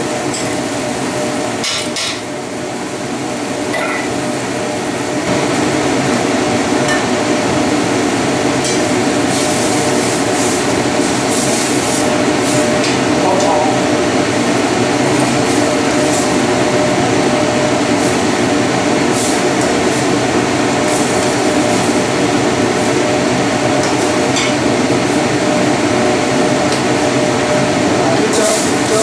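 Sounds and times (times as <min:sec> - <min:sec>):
food frying in a pan: 0:00.0 - 0:29.0
loud steady rushing noise: 0:03.6 - 0:29.0.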